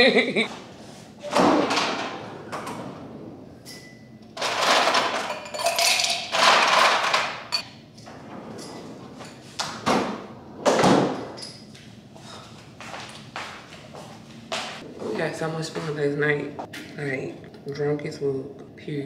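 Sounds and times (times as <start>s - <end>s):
ice cubes clattering into glass: 4.4s - 7.6s.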